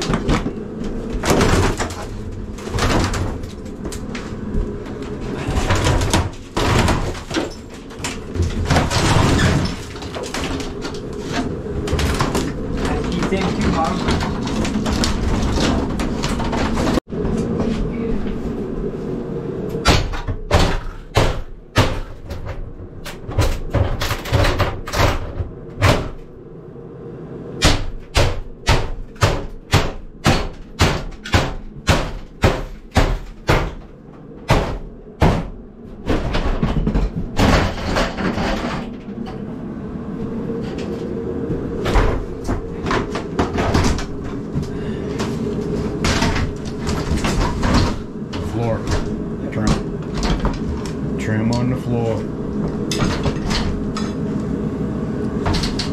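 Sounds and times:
scraping and handling noise: 0:00.0 - 0:19.2, 0:35.8 - 0:54.6.

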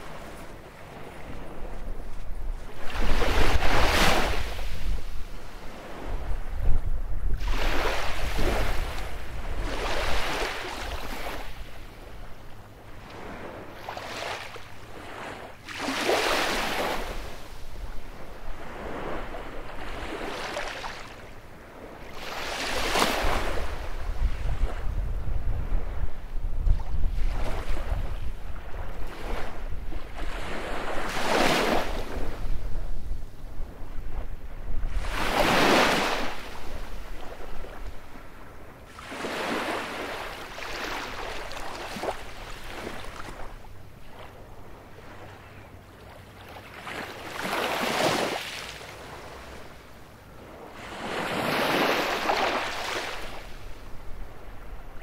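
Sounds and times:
waves breaking on beach: 0:00.0 - 0:06.5, 0:07.3 - 0:11.9, 0:12.9 - 0:26.1, 0:26.7 - 0:55.0
wind rumble on microphone: 0:00.0 - 0:15.5, 0:21.2 - 0:45.2.

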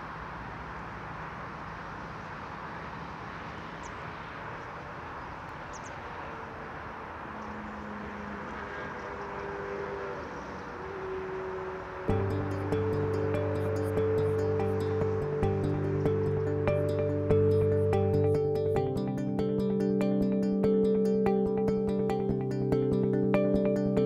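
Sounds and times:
distant city traffic hum: 0:00.0 - 0:20.4
soft sustained tones: 0:05.8 - 0:24.0.

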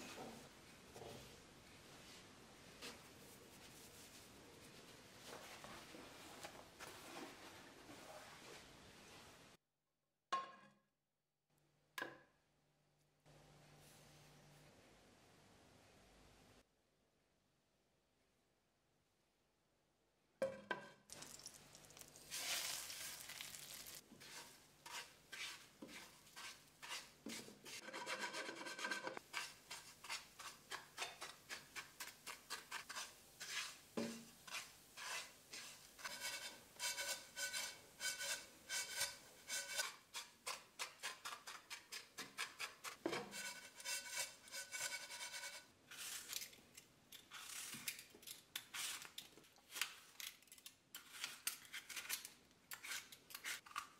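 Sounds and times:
stirring breadcrumbs in frying pan: 0:21.1 - 0:46.5.

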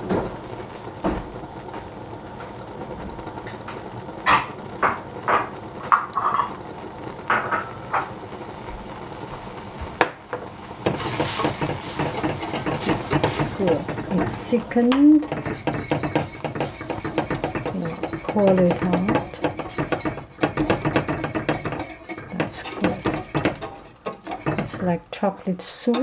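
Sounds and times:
whisk scraping a saucepan: 0:10.8 - 0:26.0.

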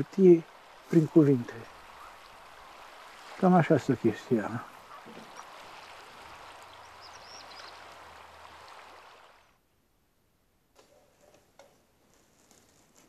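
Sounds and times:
riverside hiss: 0:00.0 - 0:09.2.

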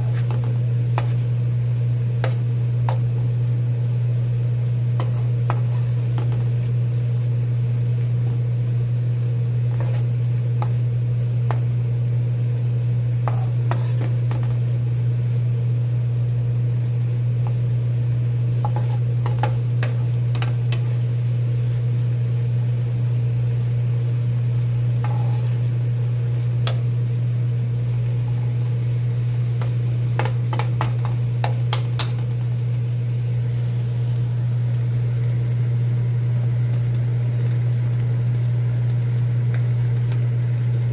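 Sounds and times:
spoon scraping frying pan: 0:00.0 - 0:01.2, 0:02.2 - 0:03.1, 0:05.0 - 0:06.4, 0:09.7 - 0:10.8, 0:13.2 - 0:14.6, 0:18.6 - 0:20.9, 0:25.0 - 0:25.6
light sizzling: 0:00.0 - 0:40.9.

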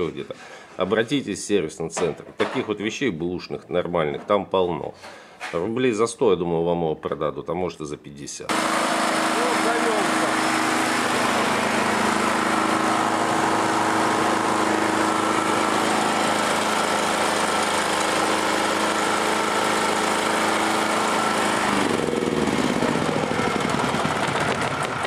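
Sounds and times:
petrol generator engine running: 0:08.5 - 0:25.0.

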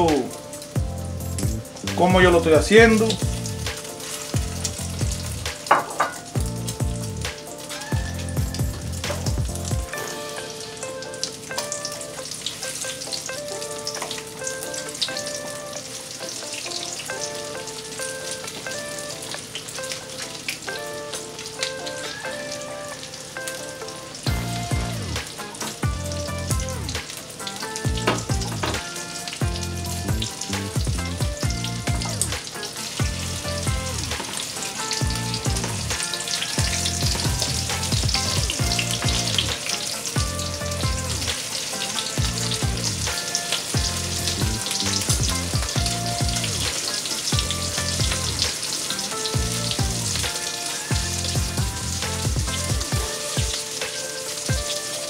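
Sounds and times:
background music: 0:00.0 - 0:55.0
shrimp sizzling in hot oil: 0:00.0 - 0:55.0
bass beat: 0:00.8 - 0:03.8, 0:04.4 - 0:05.6, 0:06.3 - 0:09.9, 0:24.3 - 0:25.2, 0:25.8 - 0:27.0, 0:27.9 - 0:28.8, 0:29.4 - 0:32.4, 0:33.0 - 0:34.2, 0:35.0 - 0:36.0, 0:36.6 - 0:39.6, 0:40.2 - 0:41.4, 0:42.2 - 0:43.1, 0:43.8 - 0:46.7, 0:47.4 - 0:48.5, 0:49.4 - 0:50.2, 0:50.9 - 0:53.5.

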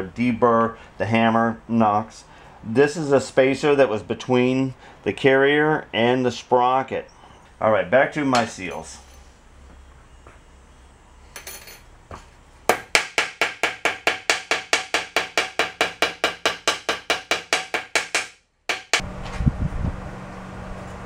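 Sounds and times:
steady low hum: 0:07.0 - 0:13.0
hammer tapping metal: 0:11.4 - 0:19.0.

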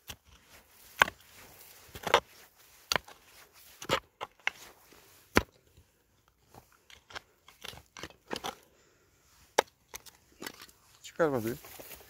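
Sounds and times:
mattock striking stony soil: 0:00.0 - 0:05.8, 0:09.4 - 0:12.0.

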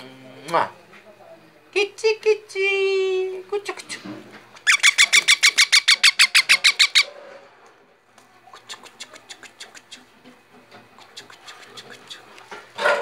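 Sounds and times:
baby parrot squawking: 0:04.6 - 0:07.1.

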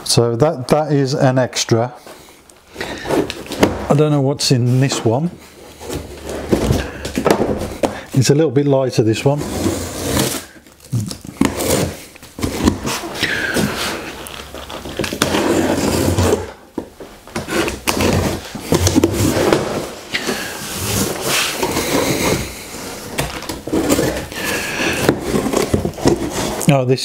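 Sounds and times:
cardboard flaps scraping and rustling: 0:04.6 - 0:08.3, 0:09.1 - 0:26.8.

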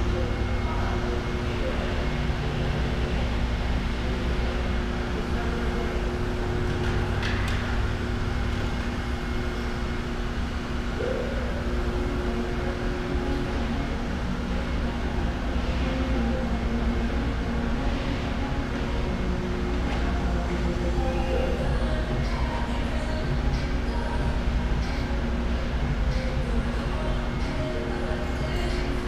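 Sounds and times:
low mechanical hum: 0:00.0 - 0:29.0.

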